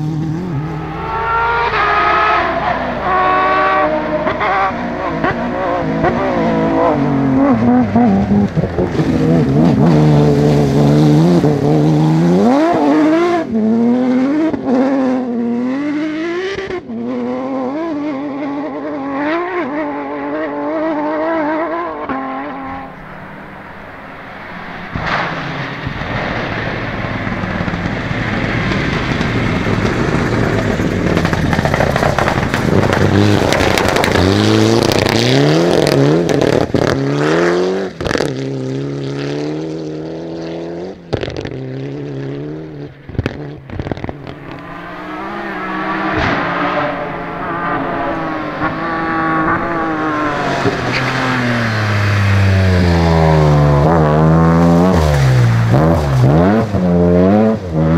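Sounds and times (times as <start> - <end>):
rally car engine revving: 0.0 - 57.9
turbocharged car engine: 0.0 - 57.9
tyres on gravel: 24.5 - 36.9
sharp cracks: 24.8 - 35.2.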